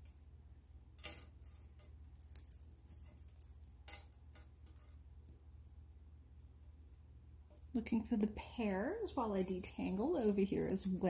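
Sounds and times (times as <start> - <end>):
jewelry clinking on marble: 0.0 - 5.4, 8.2 - 11.0
faint low hum: 0.0 - 11.0.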